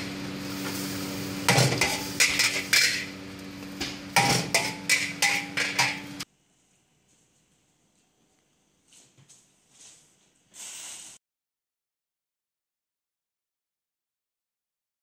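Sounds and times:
metal tongs clanking on a wok: 1.5s - 3.1s, 4.2s - 6.2s.

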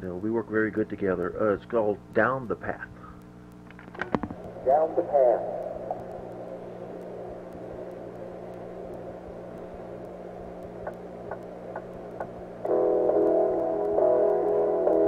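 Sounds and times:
low electrical hum: 0.0s - 15.0s
faint ticks: 2.9s - 4.6s, 5.5s - 15.0s.

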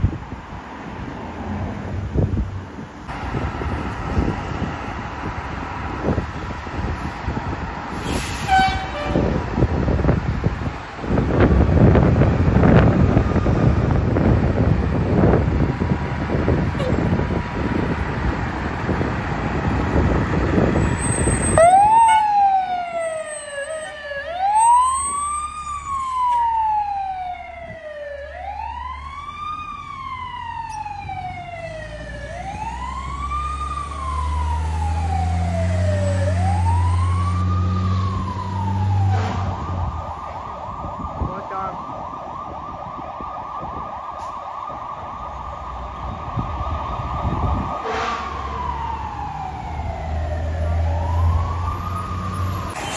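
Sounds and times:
fire truck siren: 3.1s - 52.9s
truck engine revving: 45.6s - 52.9s.

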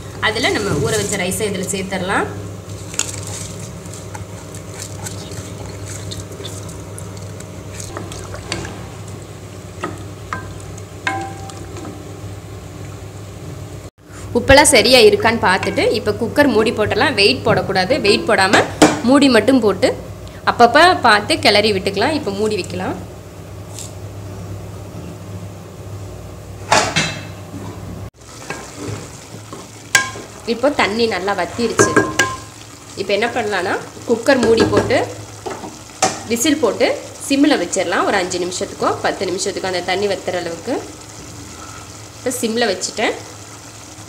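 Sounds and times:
rice stirred through water: 2.6s - 9.2s
spatula tapping pot: 9.8s - 11.7s, 31.7s - 32.5s
metal pot clattering: 9.8s - 11.8s, 31.7s - 32.5s
wooden spatula knocking a pot: 31.7s - 32.5s.

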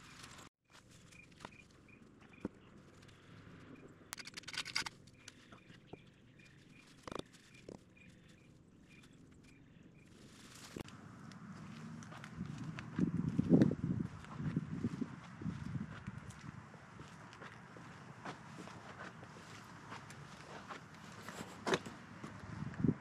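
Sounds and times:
bird chirping: 5.1s - 10.2s
steady wind-like noise: 10.0s - 23.0s.

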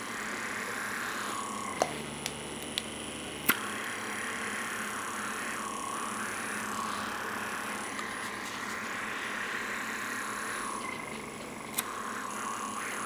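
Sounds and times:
suction wand hissing: 0.0s - 2.1s, 3.5s - 13.0s
sharp clicks: 1.8s - 3.7s, 10.8s - 12.0s.

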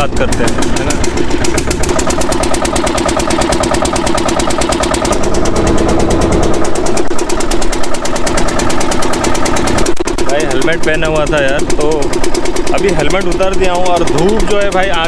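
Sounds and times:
boat engine chugging: 0.0s - 15.0s.

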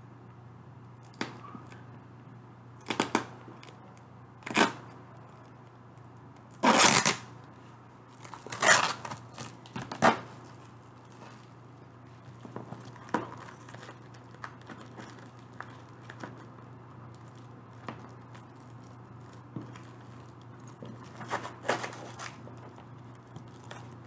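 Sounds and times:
packing tape ripped off cardboard: 2.8s - 3.8s, 4.4s - 5.0s, 6.5s - 7.3s, 8.2s - 11.4s, 17.8s - 22.7s.

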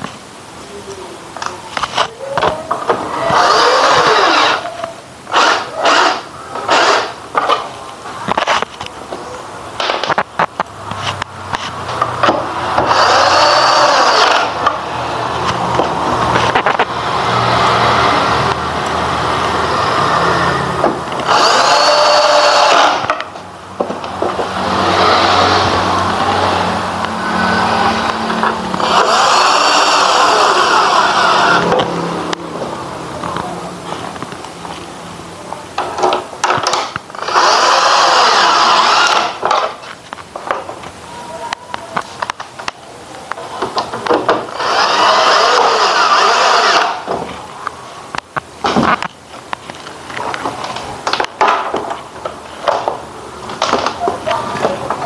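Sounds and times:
power drill whirring: 3.3s - 4.7s, 5.3s - 7.2s, 12.7s - 14.8s, 21.1s - 23.2s, 24.6s - 31.9s, 36.6s - 39.6s, 44.5s - 47.1s.

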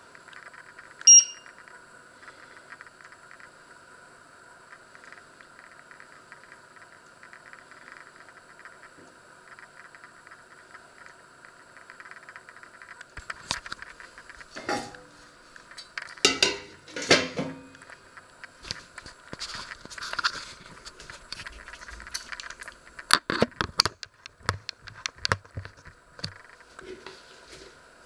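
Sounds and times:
faint crackling ticks: 0.1s - 3.6s, 4.7s - 14.5s
metal pot and lid clanking: 14.6s - 15.1s, 16.2s - 17.6s.

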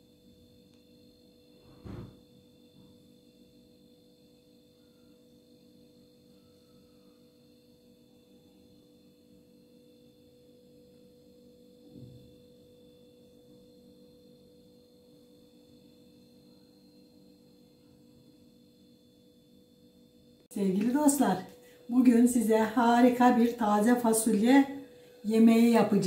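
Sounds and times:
faint steady hum: 0.0s - 26.0s
short thump: 1.7s - 2.2s.

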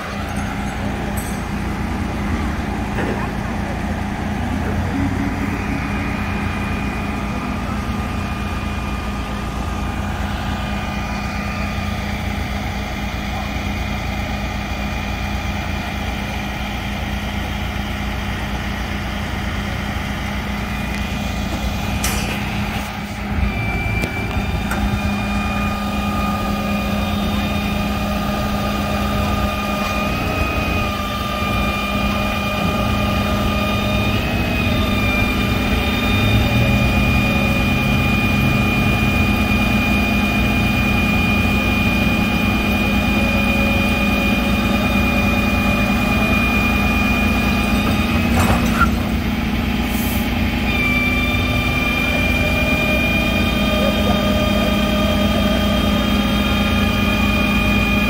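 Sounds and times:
thin steady whine: 0.0s - 14.5s
truck engine idling: 0.0s - 58.0s.

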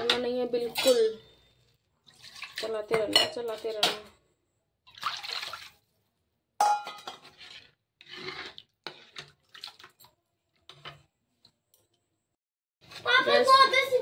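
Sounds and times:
spatula scraping metal pan: 6.9s - 9.5s, 12.8s - 13.7s.

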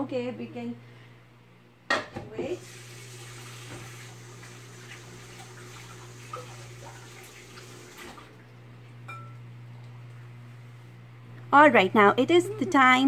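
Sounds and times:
steady low hum: 8.2s - 13.0s.

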